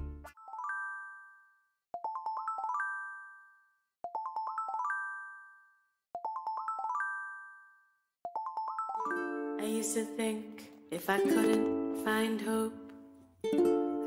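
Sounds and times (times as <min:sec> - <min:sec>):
rising bell-like chime jingle: 0:00.4 - 0:01.6.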